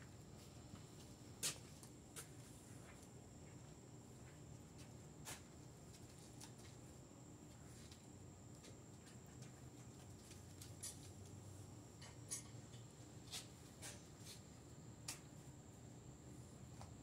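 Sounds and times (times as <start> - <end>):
faint room hum: 0.0 - 17.0.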